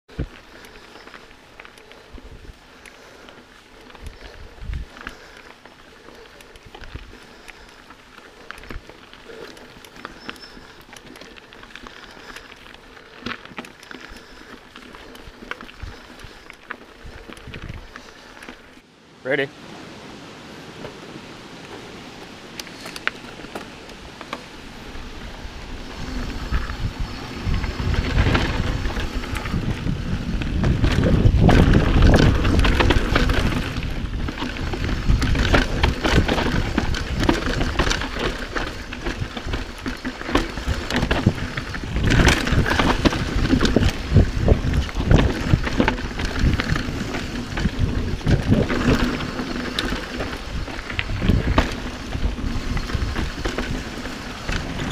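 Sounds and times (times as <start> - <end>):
bike tyres rolling over dirt: 0.0 - 18.9, 19.9 - 54.9
bike frame rattling: 0.1 - 18.8, 22.6 - 54.9
wind rushing over microphone: 3.8 - 5.4, 17.0 - 18.2, 19.6 - 54.9.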